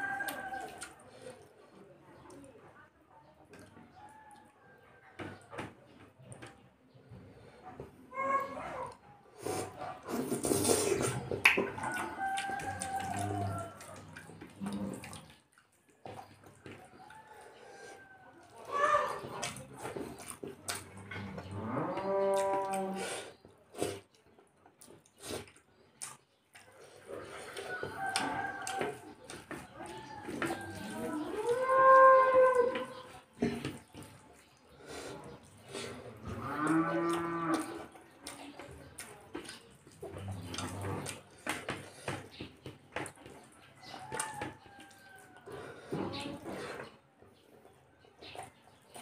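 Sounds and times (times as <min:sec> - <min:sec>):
chewing and lip-smacking: 0:00.0 - 0:01.6, 0:08.9 - 0:21.5, 0:22.2 - 0:31.7, 0:32.6 - 0:49.0
fingers mixing food on plate: 0:09.5 - 0:21.0, 0:22.3 - 0:36.0, 0:36.7 - 0:47.0.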